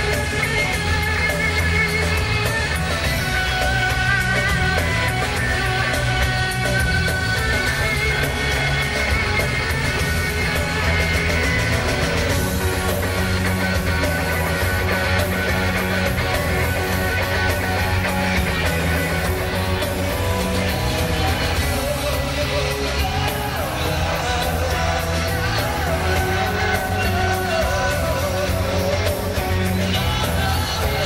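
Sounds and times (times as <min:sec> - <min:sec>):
rock band playing: 0:00.0 - 0:31.0
man singing into microphone: 0:19.6 - 0:31.0.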